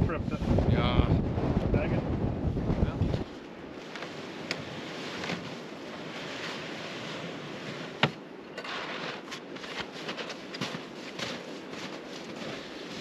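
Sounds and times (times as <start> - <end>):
gusting wind buffeting microphone: 0.0 - 13.0
footsteps crunching in snow: 3.3 - 13.0.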